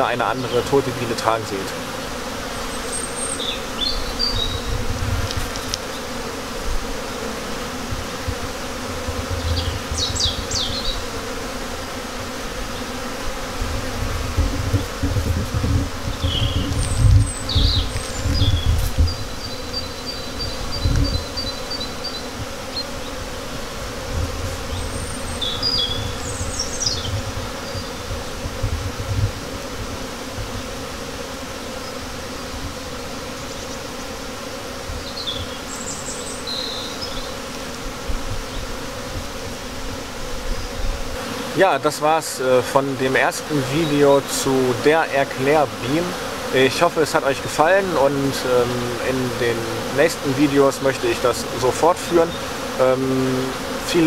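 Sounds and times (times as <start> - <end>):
birds chirping: 0.0 - 6.2, 9.1 - 13.1, 14.4 - 23.3, 24.4 - 28.3, 35.0 - 37.4, 40.5 - 54.0
bees buzzing: 0.0 - 54.0.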